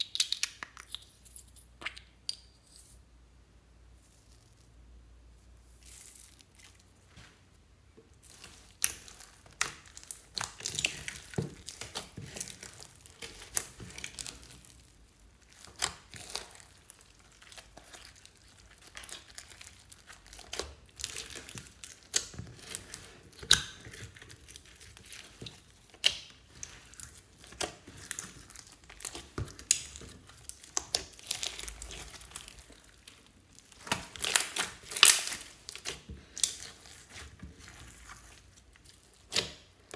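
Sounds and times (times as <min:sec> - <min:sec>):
slime crackling and popping: 0:08.2 - 0:39.9.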